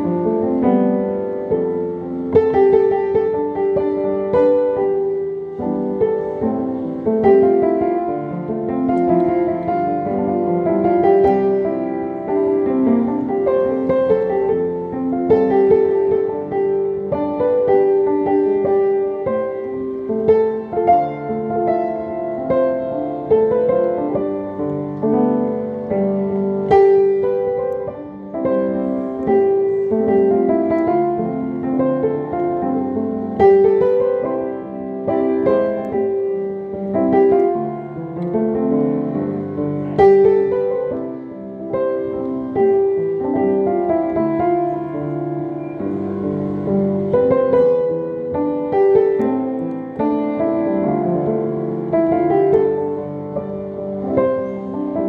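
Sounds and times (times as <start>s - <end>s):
solo piano melody: 0.0s - 55.0s.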